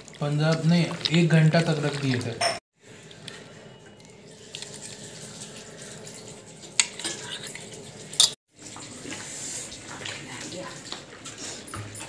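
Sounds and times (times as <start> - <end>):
utensils clinking in steel bowl: 3.8 - 8.4.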